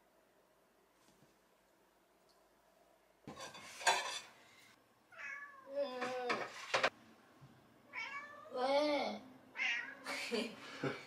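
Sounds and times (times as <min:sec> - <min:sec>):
dishes clattering at sink: 0:03.2 - 0:04.4, 0:06.0 - 0:07.0
cat meowing: 0:05.1 - 0:05.7, 0:07.9 - 0:08.6, 0:09.6 - 0:10.0.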